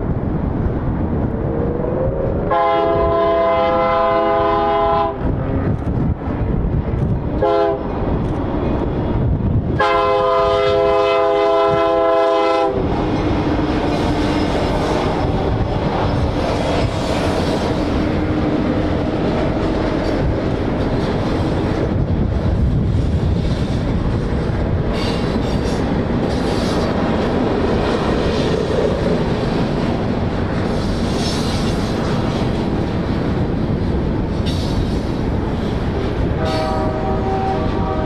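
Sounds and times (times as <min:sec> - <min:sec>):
freight train rumbling on rails: 0:00.0 - 0:38.0
locomotive horn chord: 0:02.5 - 0:05.2, 0:07.4 - 0:07.8, 0:09.8 - 0:12.8, 0:36.4 - 0:38.0.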